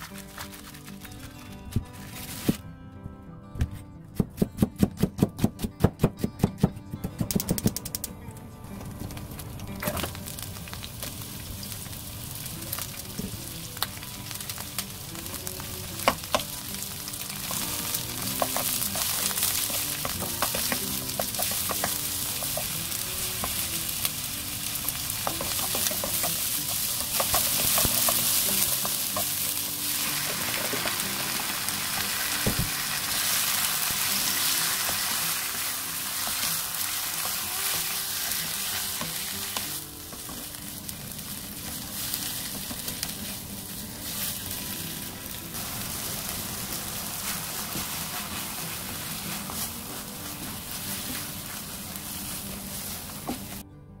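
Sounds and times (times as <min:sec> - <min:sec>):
food sizzling in oil: 0:09.7 - 0:53.6
spatula clicking and scraping pan: 0:18.3 - 0:23.6, 0:24.9 - 0:29.5.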